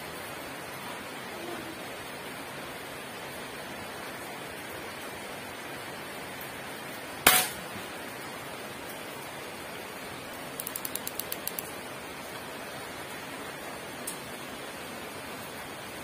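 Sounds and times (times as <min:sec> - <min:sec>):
light ticks: 0:10.6 - 0:11.7.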